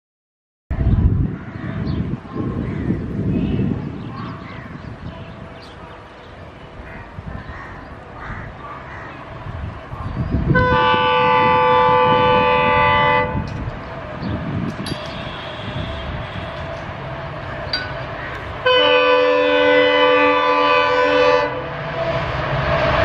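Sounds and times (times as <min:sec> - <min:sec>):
train rumbling: 0:00.7 - 0:23.0
locomotive horn blast: 0:10.5 - 0:13.6, 0:15.0 - 0:16.9, 0:18.6 - 0:21.8.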